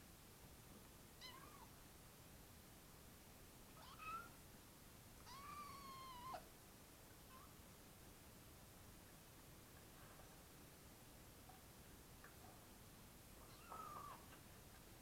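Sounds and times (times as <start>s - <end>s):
kitten meowing: 1.2s - 1.7s, 3.8s - 4.4s, 5.2s - 6.4s, 13.4s - 14.2s.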